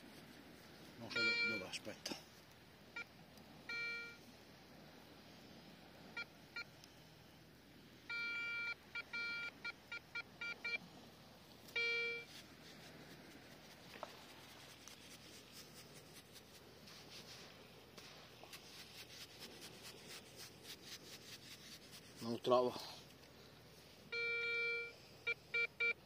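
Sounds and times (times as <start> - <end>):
metal detector beeping: 1.1 - 1.8, 3.7 - 4.2, 8.1 - 10.8, 11.7 - 12.3, 24.1 - 26.0.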